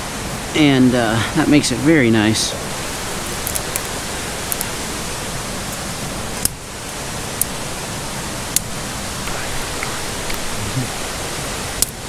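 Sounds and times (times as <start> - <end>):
mountain stream rushing: 0.0 - 12.0
dry twigs snapping: 3.2 - 4.8.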